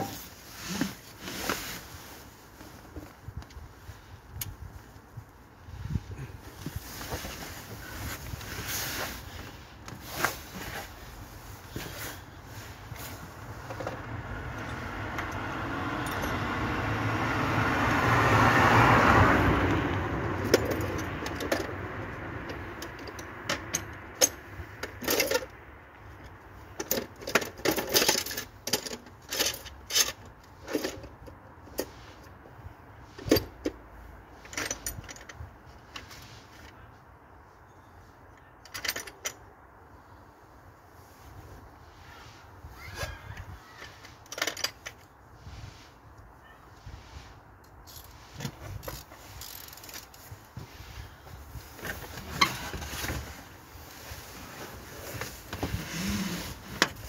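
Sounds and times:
vehicle passing: 0:13.3 - 0:20.5
sharp metallic clinks and taps: 0:14.6 - 0:16.6.

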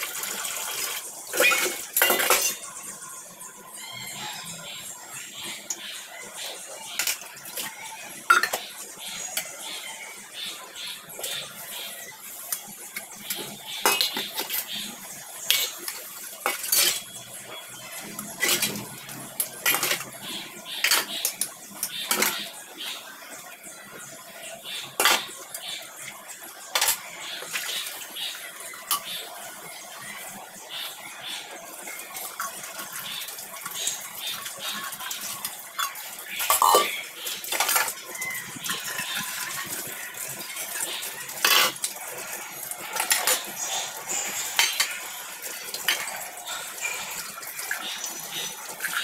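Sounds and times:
dishes scrubbed in steel sink: 0:01.3 - 0:02.6, 0:12.9 - 0:17.2, 0:17.8 - 0:22.5, 0:40.4 - 0:48.0
metal dishes clinking: 0:01.3 - 0:02.7, 0:08.3 - 0:08.7, 0:13.3 - 0:14.8, 0:15.5 - 0:17.2, 0:18.3 - 0:20.2, 0:25.0 - 0:25.4, 0:26.7 - 0:27.0, 0:35.8 - 0:38.0, 0:40.8 - 0:42.0, 0:42.6 - 0:45.1.

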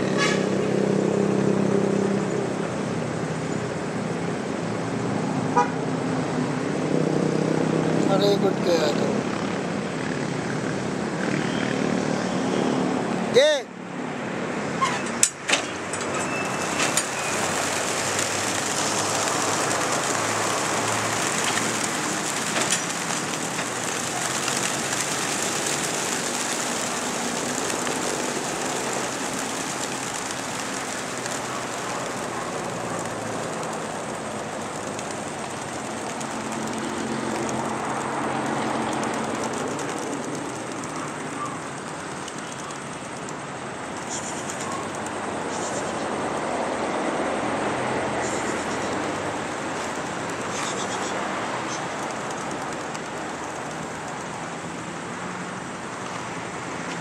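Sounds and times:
pigeon wings flapping: 0:15.8 - 0:46.7, 0:47.6 - 0:57.0.

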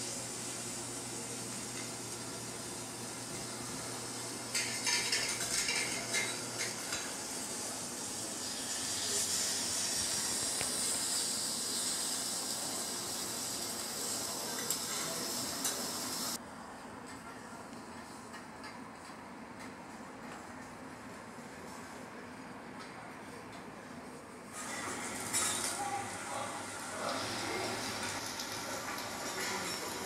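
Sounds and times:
utensils clinking against dishes: 0:04.5 - 0:07.3, 0:14.4 - 0:15.9, 0:24.6 - 0:26.0, 0:28.0 - 0:30.0
steady high hiss: 0:07.0 - 0:16.4.

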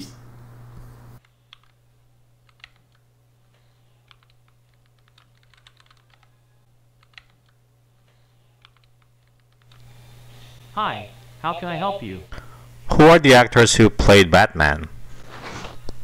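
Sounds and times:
faint keyboard keystrokes: 0:01.5 - 0:01.8, 0:04.0 - 0:06.3, 0:07.0 - 0:07.6, 0:08.6 - 0:09.9.

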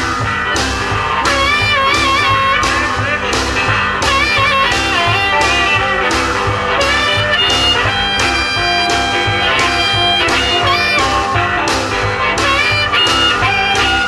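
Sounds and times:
drums with steady beat: 0:00.0 - 0:14.0
electric blues band playing: 0:00.0 - 0:14.0
electric guitar: 0:00.0 - 0:14.0.

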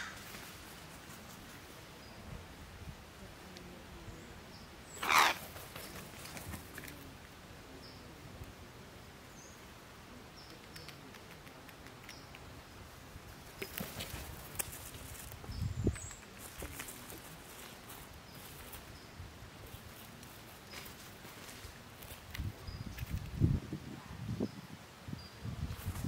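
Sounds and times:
crow cawing: 0:00.0 - 0:00.3, 0:05.0 - 0:05.4.

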